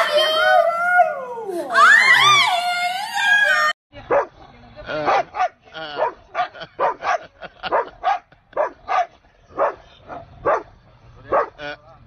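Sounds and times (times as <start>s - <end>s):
dog yelping and yowling: 0.0s - 3.7s.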